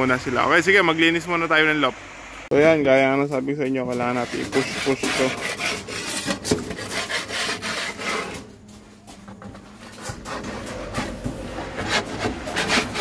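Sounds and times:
rough scraping strokes: 3.8 - 8.5, 9.6 - 13.0.

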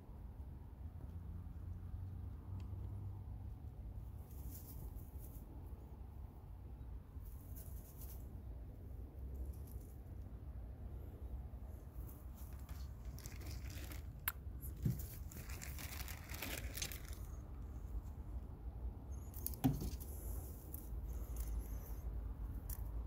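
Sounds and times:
rabbit crunching leaves: 4.0 - 5.8, 7.1 - 10.4, 11.7 - 18.3.

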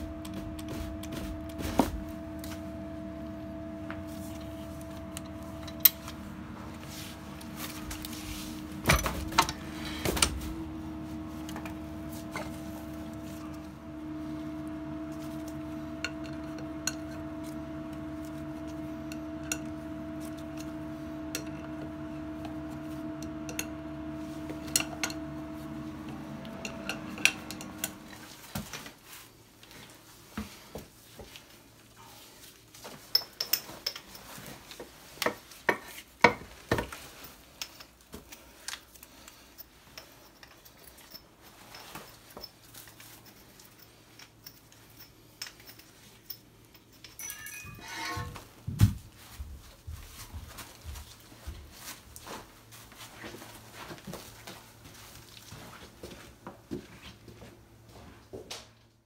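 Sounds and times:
hydraulic power unit humming: 0.0 - 28.9, 47.2 - 49.3
metallic clanks and clinks: 40.0 - 48.4.

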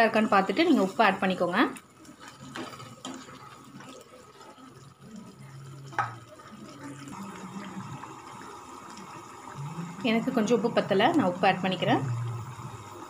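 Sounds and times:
gravy bubbling in a pan: 0.0 - 13.0
faint steady hum: 4.2 - 13.0.

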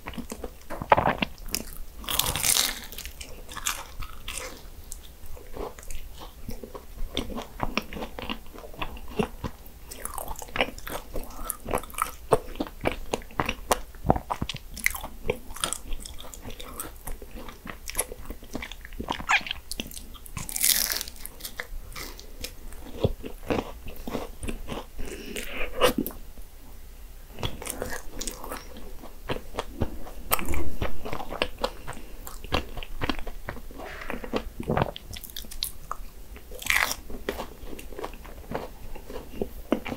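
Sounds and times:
pastry crust crunching: 14.3 - 24.9.

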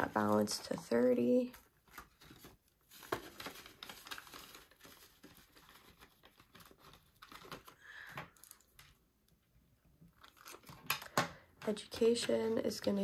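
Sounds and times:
paper and plastic crinkling: 0.0 - 9.0, 10.1 - 11.2.

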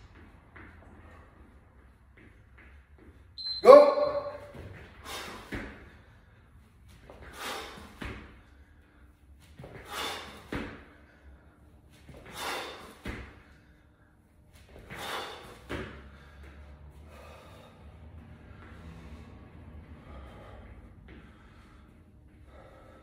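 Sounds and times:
heavy breathing: 4.9 - 23.0.

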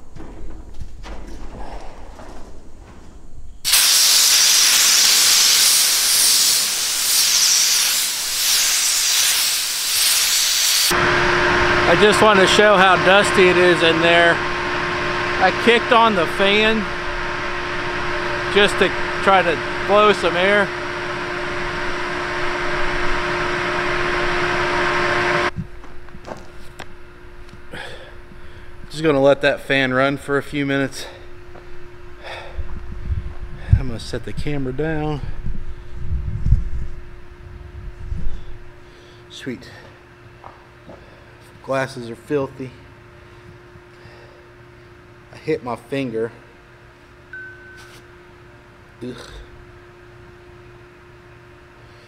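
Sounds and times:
fan rushing air with hum: 0.0 - 52.0
compressed air blow gun hissing: 3.7 - 10.9.

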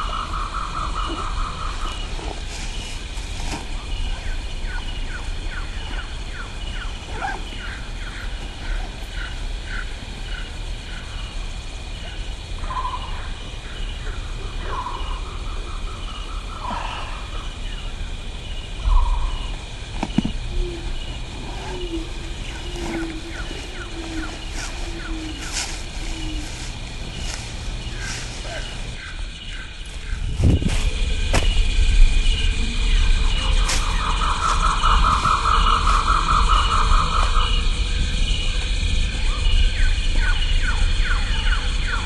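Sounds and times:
birds calling: 0.0 - 42.0
steady high hum: 0.0 - 42.0
thump: 31.3 - 31.6.

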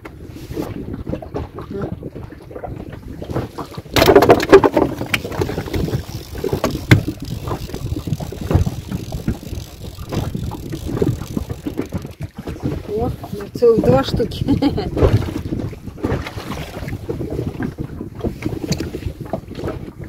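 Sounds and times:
wind on microphone: 0.0 - 20.0
handling knocks and rustling: 3.7 - 12.3.

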